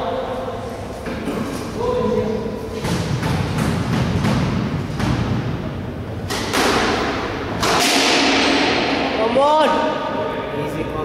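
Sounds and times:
squash ball hits: 2.7 - 9.2.

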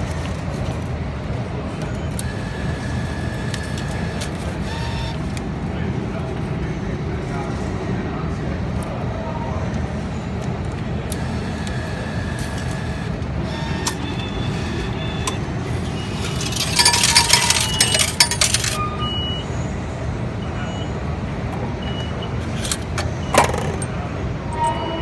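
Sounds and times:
station background rumble: 0.0 - 25.0
coins clinking into metal tray: 13.7 - 14.2, 16.0 - 18.8
short high beeps: 24.5 - 25.0.

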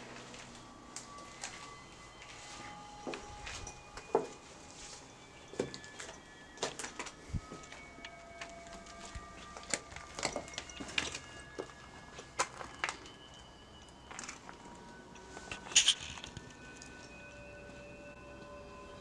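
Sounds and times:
footsteps crunching over debris: 0.0 - 13.3
debris cracking underfoot: 8.8 - 13.1.

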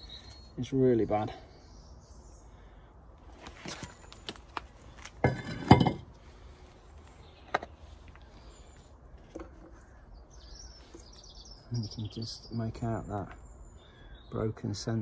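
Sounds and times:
metal disc clanking on paving: 5.2 - 6.2.

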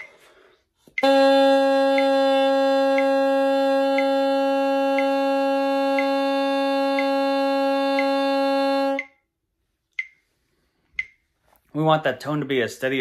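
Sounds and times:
bassoon reed buzzing tone: 1.0 - 9.2
metronome click: 3.8 - 6.3, 6.9 - 9.2, 9.9 - 10.2, 11.0 - 11.2.

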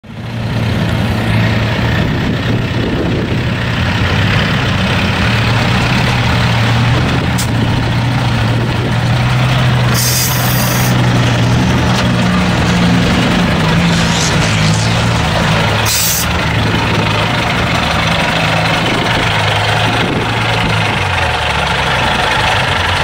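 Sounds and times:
diesel truck engine running: 0.0 - 23.0
brief hiss: 10.0 - 10.9.

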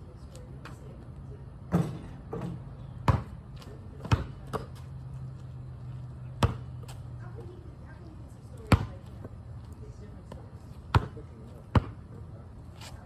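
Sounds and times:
basketball bouncing on asphalt: 1.7 - 7.7, 8.3 - 12.3.

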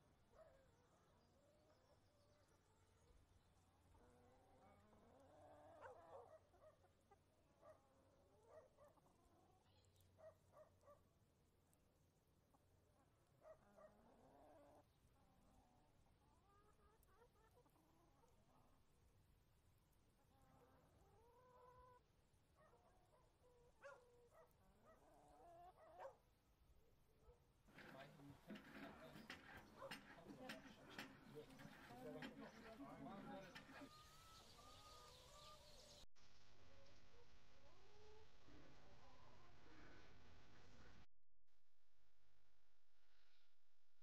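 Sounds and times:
faint animal calls: 27.7 - 36.0.

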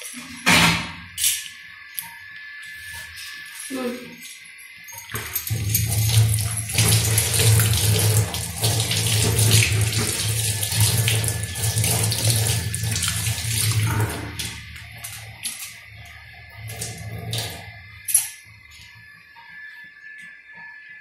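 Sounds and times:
tap water splashing in sink: 5.1 - 18.3
water splashing over hand: 5.2 - 15.8.

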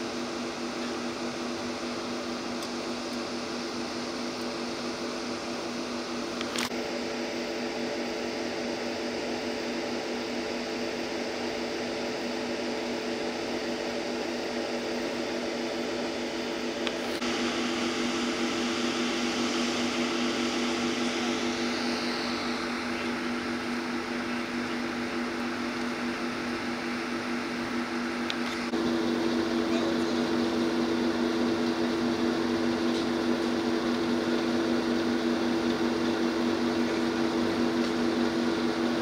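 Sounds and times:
mechanical hum: 0.0 - 39.0
loud hiss: 17.2 - 26.0.

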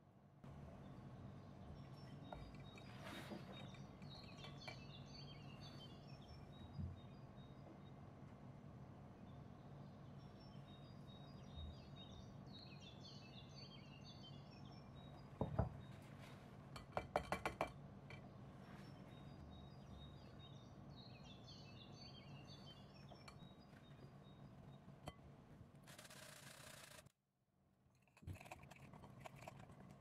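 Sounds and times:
birds chirping: 0.7 - 8.3, 9.1 - 16.1, 18.2 - 25.0.

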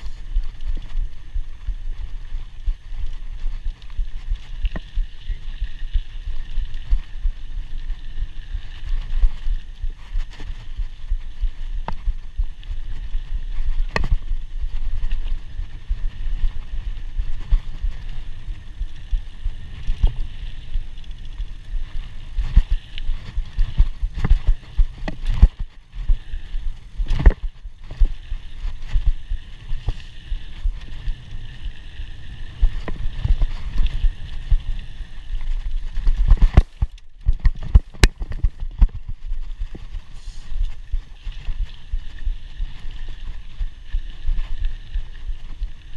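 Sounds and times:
bike knocks and rattles: 36.0 - 39.8.

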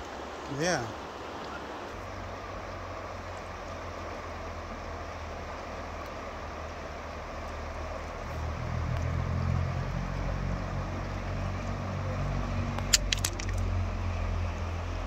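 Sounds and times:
river running over rocks: 0.0 - 15.0
sharp clicks: 12.8 - 13.6.

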